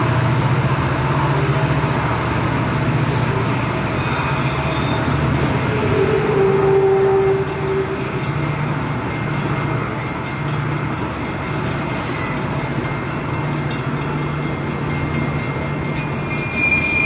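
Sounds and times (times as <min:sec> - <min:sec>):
train wheels rumbling on rails: 0:00.0 - 0:17.0
high squeal: 0:03.9 - 0:05.2, 0:11.7 - 0:12.5, 0:16.0 - 0:17.0.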